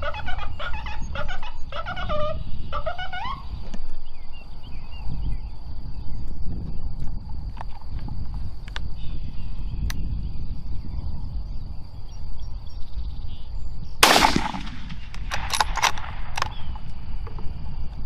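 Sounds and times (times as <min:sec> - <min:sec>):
wind rumble on microphone: 0:00.0 - 0:18.0
rifle shot: 0:14.0 - 0:16.7.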